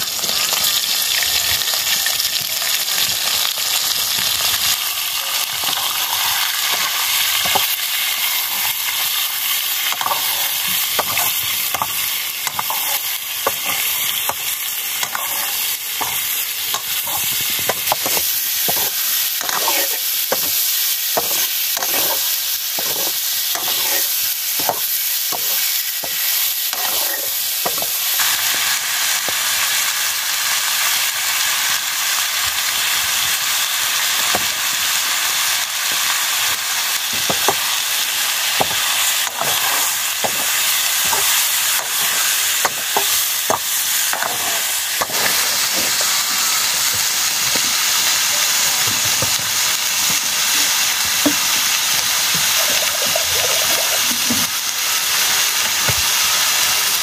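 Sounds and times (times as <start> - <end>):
meat sizzling in a wok: 0.0 - 57.0
metal ladle scraping pan: 5.6 - 20.6, 21.2 - 27.9, 38.6 - 46.1.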